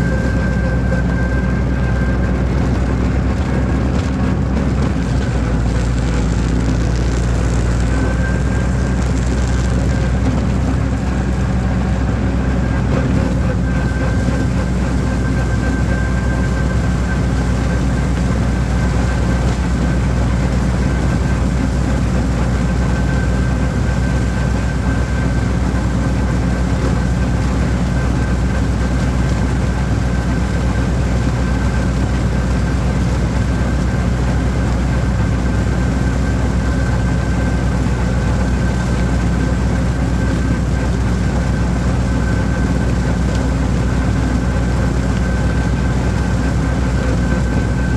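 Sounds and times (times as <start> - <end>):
thin steady whine: 0.0 - 47.9
tractor engine running: 0.0 - 47.9.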